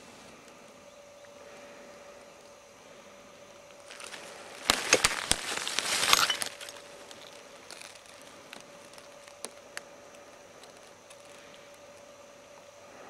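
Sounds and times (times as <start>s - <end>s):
dry leaves crackling: 3.4s - 12.6s.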